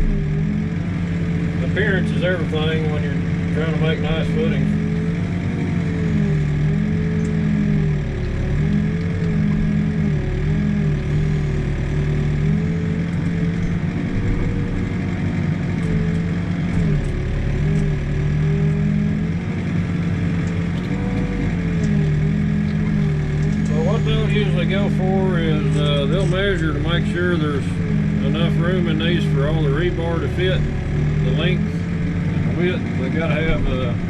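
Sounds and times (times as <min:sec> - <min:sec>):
excavator diesel engine running: 0:00.0 - 0:34.0
wavering high whine: 0:20.4 - 0:34.0.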